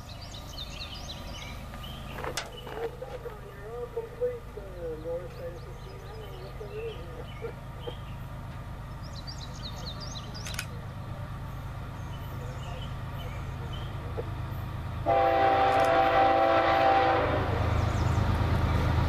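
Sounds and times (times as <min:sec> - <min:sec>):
locomotive engine rumble: 0:00.0 - 0:19.0
train air horn blast: 0:15.0 - 0:17.8.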